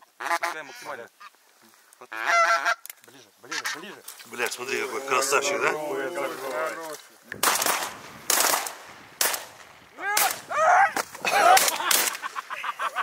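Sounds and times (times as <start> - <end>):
geese honking: 0.1 - 1.4, 2.0 - 4.0, 4.6 - 6.8
shotgun shots: 7.4 - 9.6.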